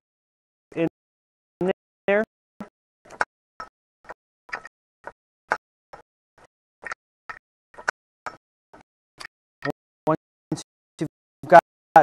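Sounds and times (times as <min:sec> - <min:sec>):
hand-cranked winch clicking: 0:02.6 - 0:09.8.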